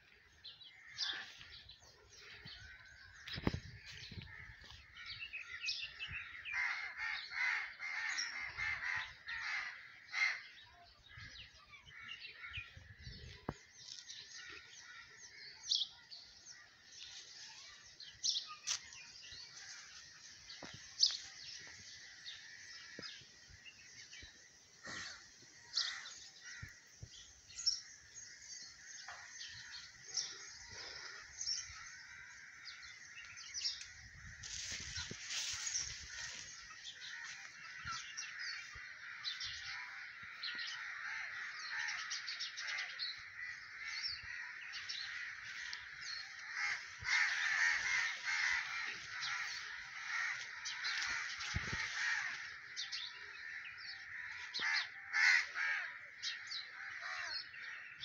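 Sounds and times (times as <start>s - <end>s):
birds chirping: 0.0s - 58.0s.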